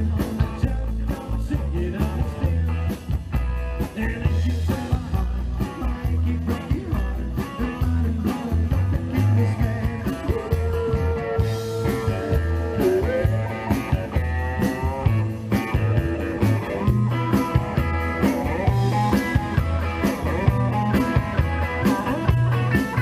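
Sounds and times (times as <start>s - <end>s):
rockabilly band playing: 0.0s - 23.0s
slapped upright bass: 0.0s - 23.0s.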